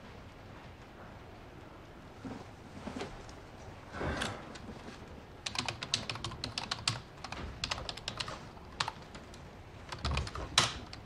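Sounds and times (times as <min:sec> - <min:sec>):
computer keyboard typing: 0:05.4 - 0:11.0.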